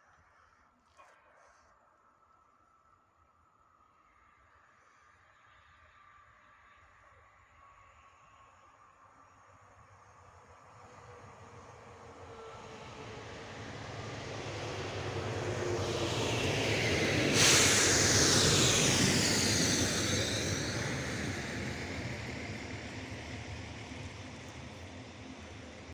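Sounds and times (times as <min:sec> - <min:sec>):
diesel railcar passing: 0:08.5 - 0:25.9
rush of air: 0:14.8 - 0:24.2.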